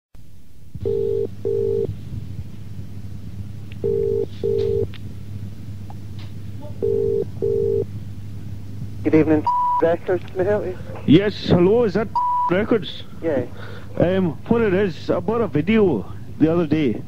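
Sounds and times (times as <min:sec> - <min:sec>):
low hum on phone line: 0:00.2 - 0:17.0
telephone ringing tone: 0:00.8 - 0:01.9, 0:03.8 - 0:04.9, 0:06.8 - 0:07.9.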